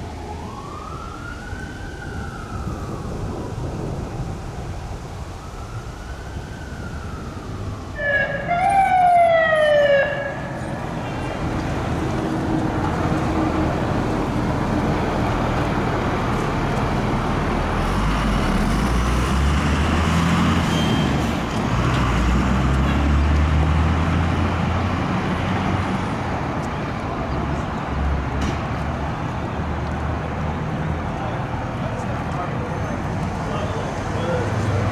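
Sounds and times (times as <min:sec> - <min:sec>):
fire truck siren wailing and yelping: 0:00.0 - 0:03.6, 0:05.0 - 0:11.4
traffic noise: 0:00.0 - 0:34.9.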